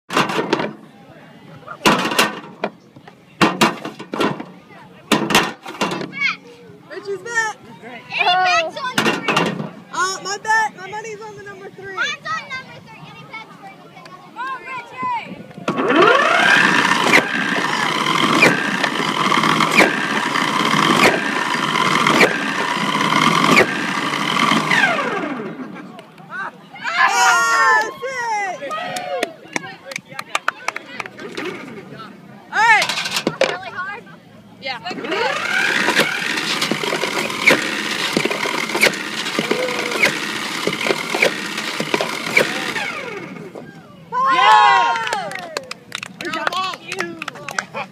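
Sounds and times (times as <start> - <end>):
wheel motors whining: 15.5 - 27.9, 34.6 - 45.7.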